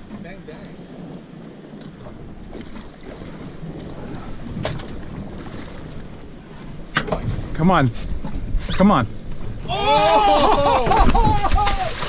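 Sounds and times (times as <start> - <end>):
water lapping at boat: 0.0 - 12.0
wind on microphone: 0.0 - 12.0.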